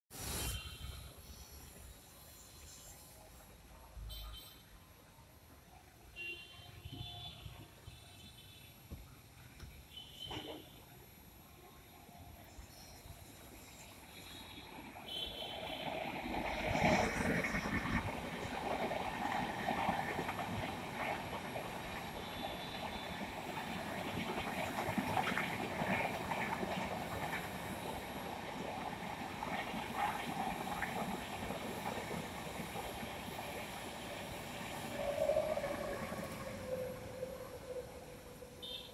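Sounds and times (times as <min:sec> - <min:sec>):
electric locomotive passing: 0:10.8 - 0:38.9.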